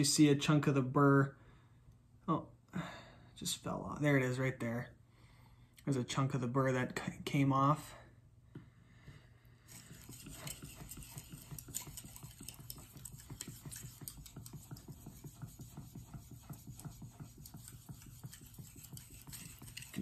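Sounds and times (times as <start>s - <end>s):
knife sharpening on whetstone: 16.8s - 20.0s.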